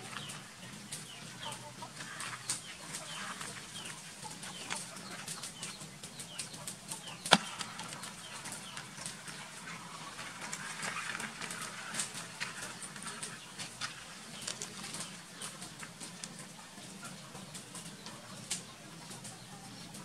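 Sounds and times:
shell and claws tapping plastic: 0:07.1 - 0:08.9.

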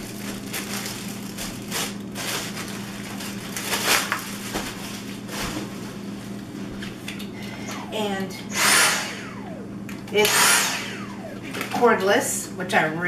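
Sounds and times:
plastic bag crinkling: 0:00.0 - 0:05.4
steady low hum: 0:00.0 - 0:13.0.

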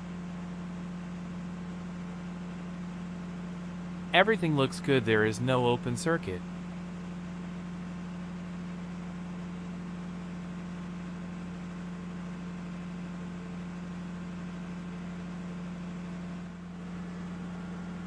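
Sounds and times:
machinery humming: 0:04.2 - 0:06.4
noisy hiss: 0:04.2 - 0:06.4.

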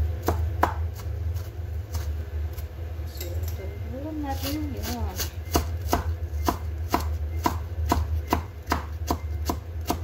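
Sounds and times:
knife chopping on plastic board: 0:00.2 - 0:01.1, 0:05.2 - 0:10.0.

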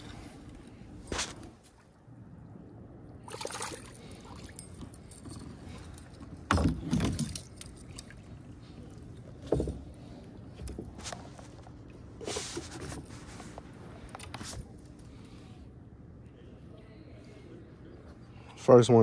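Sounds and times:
soft clicks and rustles: 0:03.8 - 0:15.4.

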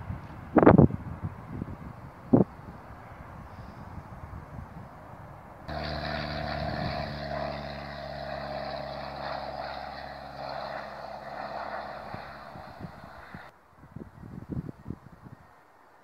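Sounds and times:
jet engine roar: 0:05.7 - 0:13.5.

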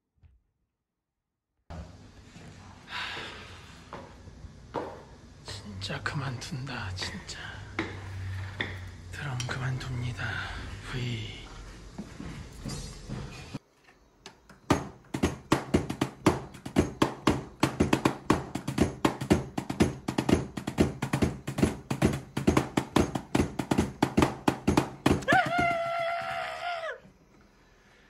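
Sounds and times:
drumsticks hitting electronic drum pads: 0:14.3 - 0:26.0
person shrieking: 0:25.2 - 0:27.1.

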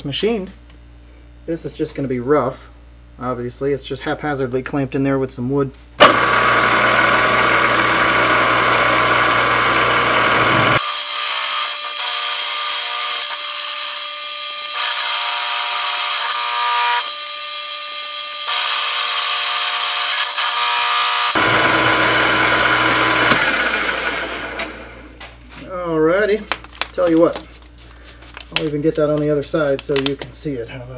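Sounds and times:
milling machine whine: 0:06.0 - 0:25.1.

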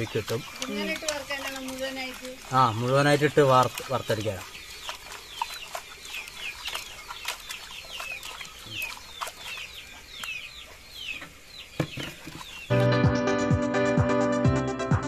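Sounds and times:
hands rubbing fish in pot: 0:00.0 - 0:10.1.

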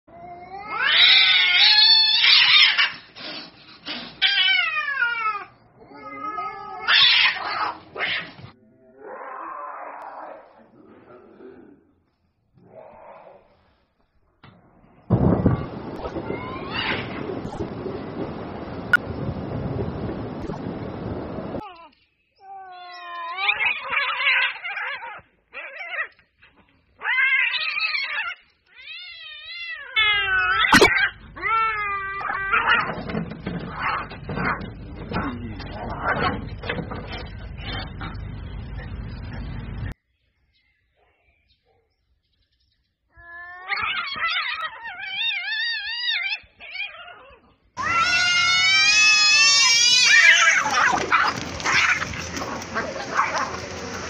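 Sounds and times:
cats yowling: 0:00.1 - 0:03.1, 0:04.2 - 0:10.5, 0:16.0 - 0:17.2, 0:21.6 - 0:26.2, 0:27.0 - 0:33.0, 0:43.2 - 0:54.0
cats hissing: 0:00.2 - 0:08.6, 0:43.3 - 0:54.0
steady rushing noise: 0:17.1 - 0:21.6.

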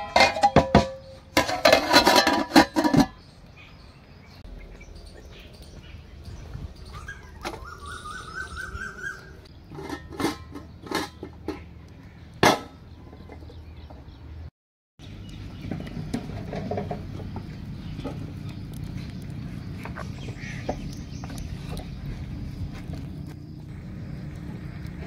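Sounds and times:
brick clanking on pot lid: 0:00.0 - 0:03.2
wood fire crackling: 0:17.0 - 0:25.0.

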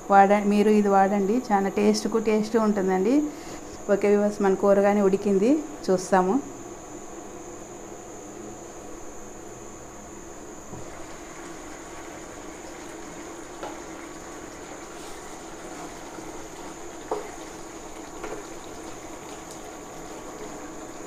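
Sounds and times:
curry simmering and bubbling: 0:10.8 - 0:21.0.

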